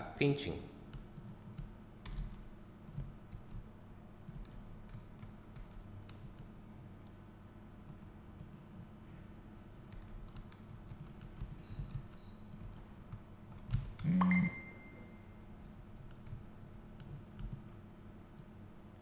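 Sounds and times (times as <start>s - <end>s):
computer keyboard clicks: 0.9s - 3.6s, 4.2s - 6.5s, 9.9s - 14.5s, 15.9s - 17.7s.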